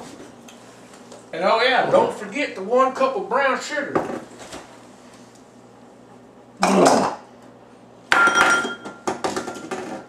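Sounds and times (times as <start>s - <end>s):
ceramic bowl clinking: 8.1s - 9.8s.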